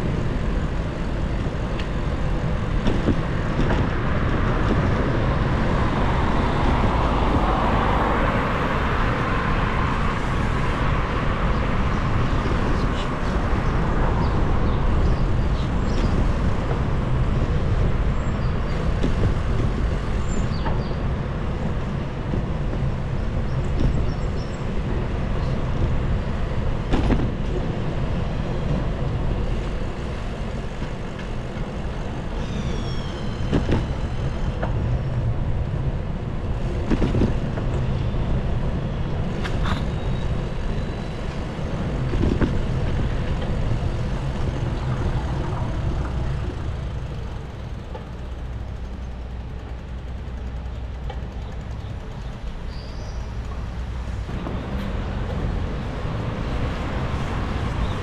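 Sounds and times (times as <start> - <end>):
traffic: 0.0 - 58.0
wind and tyres rumbling: 0.0 - 58.0
high falling squeal: 32.3 - 34.4.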